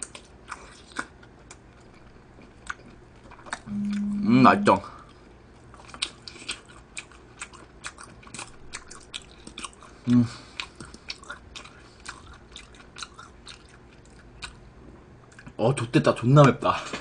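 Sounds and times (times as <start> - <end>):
wet chewing and mouth smacks: 0.0 - 4.0, 5.1 - 14.6
person humming: 3.7 - 4.9, 10.1 - 10.4.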